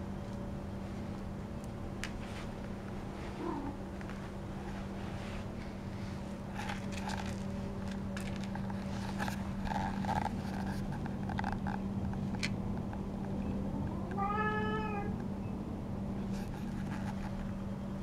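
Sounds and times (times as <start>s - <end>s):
steady low hum: 0.0s - 18.0s
light scrapes and clicks: 6.5s - 13.4s, 16.3s - 17.6s
cat meowing: 13.8s - 15.2s.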